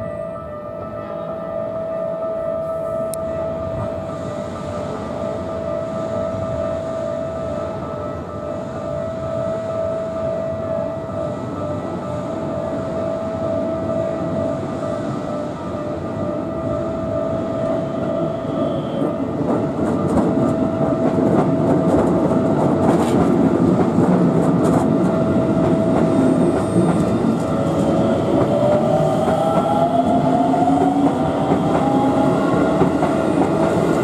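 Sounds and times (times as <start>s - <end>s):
railway crossing warning bell: 0.0s - 34.0s
train wheels clattering on rails: 19.0s - 34.0s.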